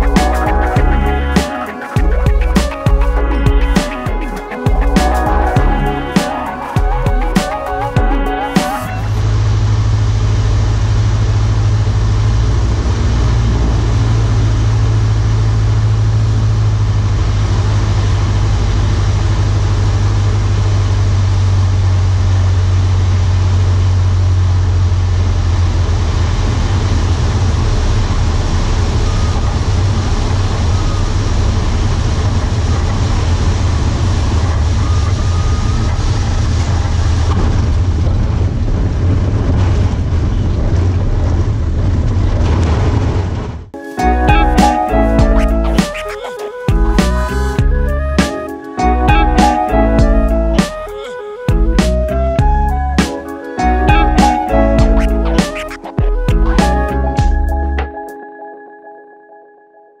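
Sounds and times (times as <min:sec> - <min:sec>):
airplane engine and propeller droning: 0:00.0 - 0:42.4.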